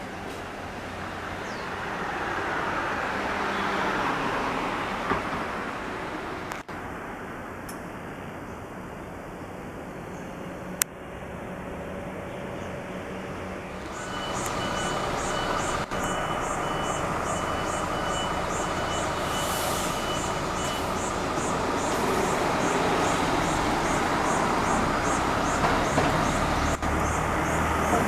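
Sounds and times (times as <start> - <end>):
fire engine running: 10.9 - 28.0
high warning beeper: 13.9 - 25.6
air hiss: 19.2 - 23.5.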